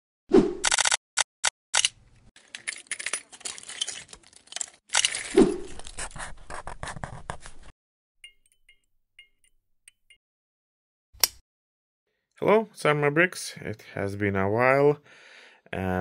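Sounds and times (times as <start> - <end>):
plastic bricks clattering: 2.4 - 6.0.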